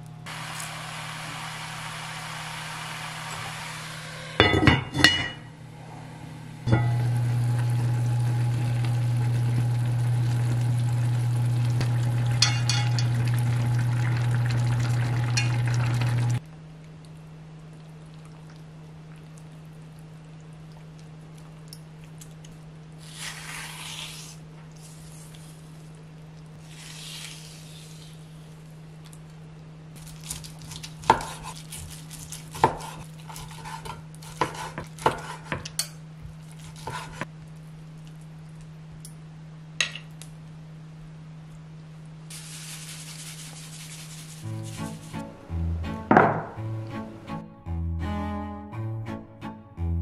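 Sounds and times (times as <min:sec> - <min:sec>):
hissing sizzle: 0:00.0 - 0:16.4, 0:26.6 - 0:28.6, 0:42.3 - 0:45.9
low hum: 0:00.0 - 0:21.9, 0:37.3 - 0:50.0
metal utensil clinking against pot: 0:12.4 - 0:13.2.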